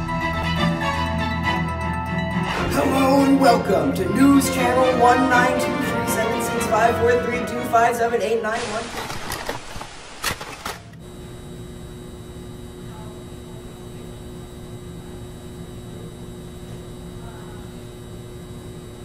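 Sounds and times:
tv static noise: 0:03.6 - 0:19.0
faint electrical hum: 0:08.1 - 0:19.0.

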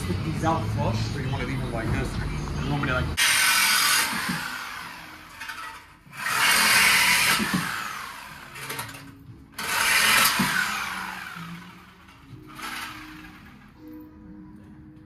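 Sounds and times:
power tool cutting metal pipe: 0:03.2 - 0:13.7.

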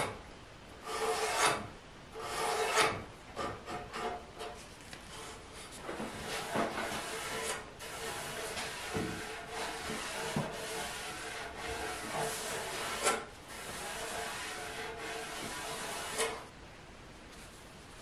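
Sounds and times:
sandpaper sanding wood: 0:06.1 - 0:16.4.

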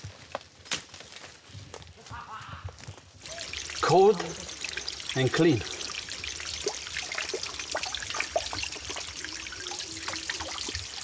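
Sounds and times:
water trickling and dripping: 0:03.2 - 0:11.0.

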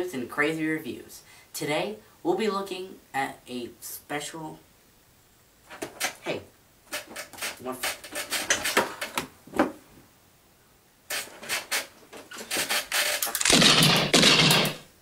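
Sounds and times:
knocks and thumps: 0:13.4 - 0:14.9.

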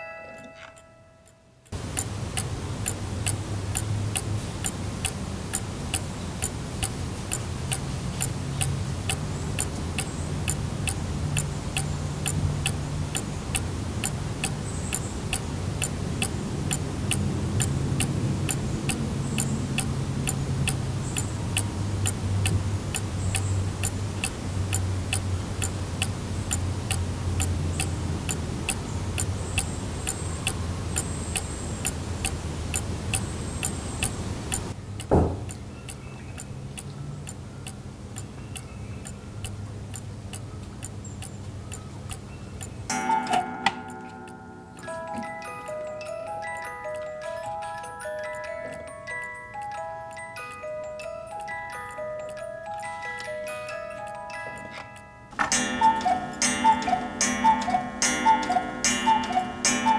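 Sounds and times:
clock ticking: 0:00.0 - 0:59.9
thump: 0:35.1 - 0:35.5.

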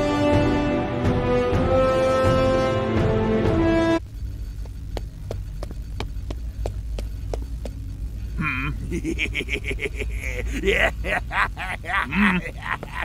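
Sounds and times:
low machine hum: 0:03.9 - 0:13.0
regular ticking: 0:04.0 - 0:13.0.

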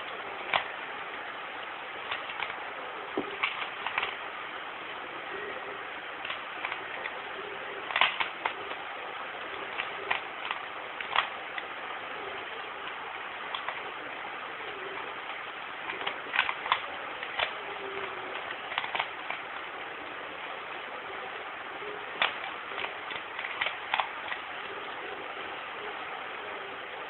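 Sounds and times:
steady hiss: 0:00.0 - 0:27.0
plastic puzzle cube clicking: 0:00.4 - 0:00.7, 0:02.1 - 0:02.6, 0:03.2 - 0:04.2, 0:06.2 - 0:07.2, 0:07.9 - 0:08.8, 0:09.6 - 0:11.7, 0:13.5 - 0:13.8, 0:15.0 - 0:19.5, 0:22.2 - 0:24.4.

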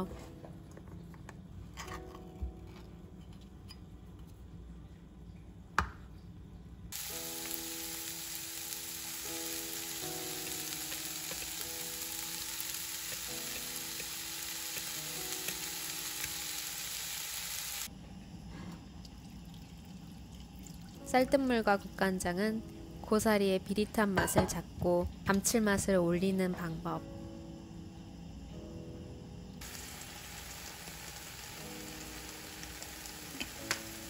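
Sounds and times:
soft background music: 0:00.0 - 0:05.7, 0:06.3 - 0:18.0, 0:20.4 - 0:34.0
vegetables sizzling in oil: 0:06.9 - 0:17.9, 0:29.6 - 0:34.0.

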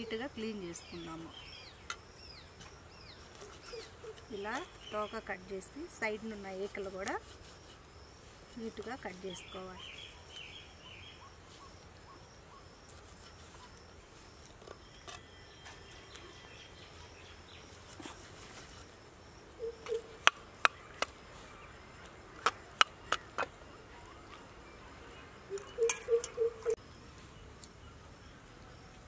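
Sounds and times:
birds chirping: 0:00.0 - 0:12.8, 0:19.2 - 0:29.0
insects chirping: 0:00.0 - 0:29.0.

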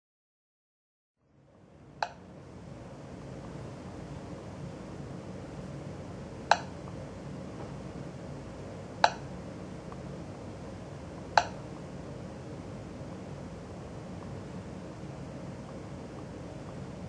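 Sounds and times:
touchscreen tap clicks: 0:11.4 - 0:11.6.

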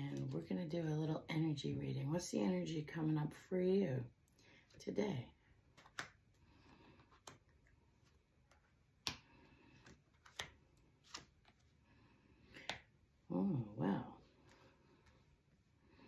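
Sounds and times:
cards clicking on table: 0:05.7 - 0:06.2, 0:08.5 - 0:11.6.

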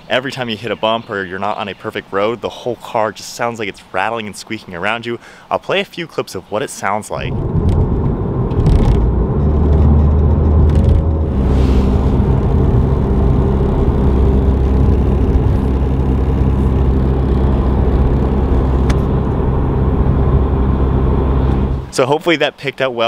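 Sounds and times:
engine and road drone: 0:07.2 - 0:22.2.

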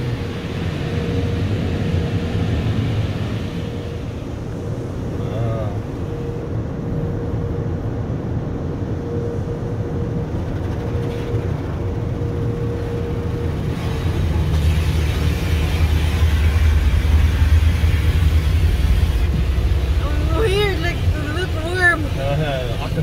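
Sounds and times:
faint hum: 0:00.0 - 0:23.0
low rumble: 0:00.0 - 0:23.0
water spray on car: 0:13.5 - 0:23.0.

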